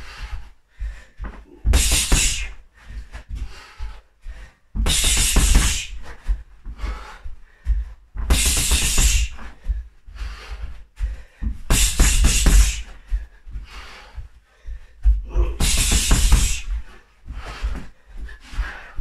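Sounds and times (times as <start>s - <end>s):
gloves punching a bag: 1.5s - 2.6s, 4.8s - 6.0s, 8.2s - 9.4s, 11.6s - 13.0s, 15.4s - 16.8s.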